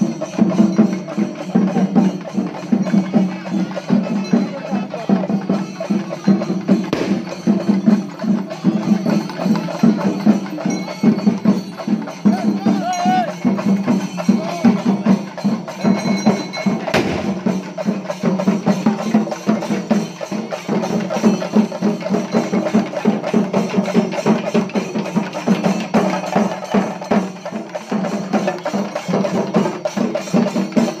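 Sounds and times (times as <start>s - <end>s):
barrel drums beaten with sticks: 0.0s - 31.0s.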